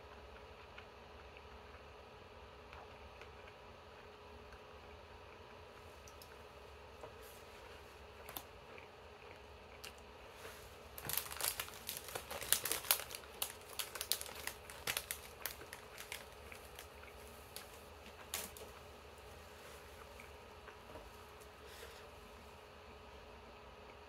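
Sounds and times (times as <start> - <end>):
plastic wrapper crinkling: 10.8 - 18.8.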